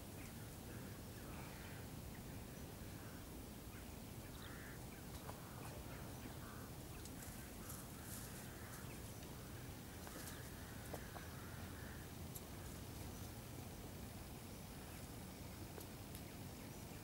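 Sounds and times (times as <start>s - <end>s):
faint short bird calls: 3.0s - 9.1s.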